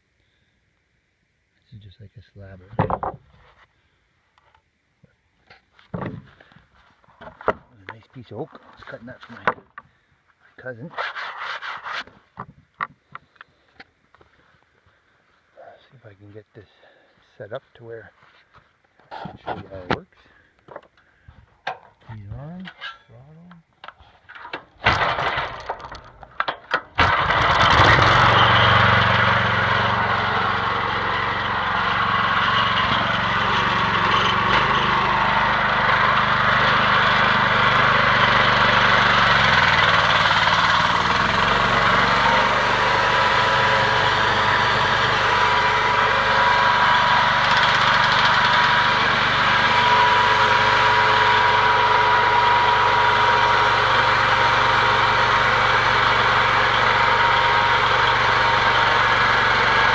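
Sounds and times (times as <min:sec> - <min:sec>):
gasoline engine running: 0:27.0 - 0:59.9.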